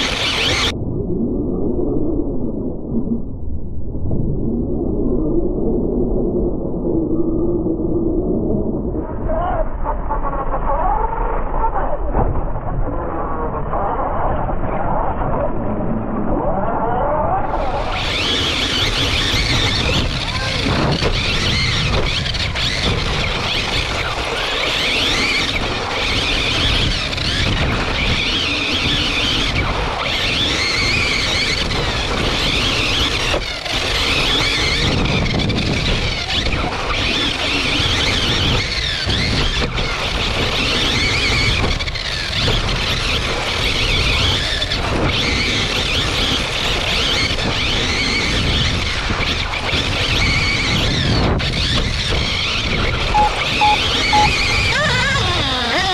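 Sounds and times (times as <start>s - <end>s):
electric motor whining: 0.0s - 0.7s, 17.5s - 46.6s, 47.5s - 55.9s
tyres rumbling on dirt: 17.5s - 46.6s.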